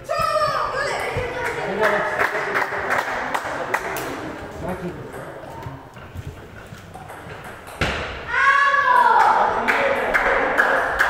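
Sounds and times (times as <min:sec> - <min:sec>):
table tennis balls clicking: 0:01.0 - 0:08.1.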